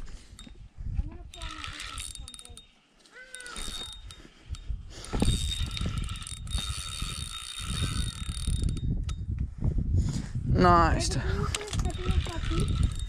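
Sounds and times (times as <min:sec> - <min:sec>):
fishing reel gears whining: 0:01.3 - 0:09.2, 0:11.7 - 0:13.0.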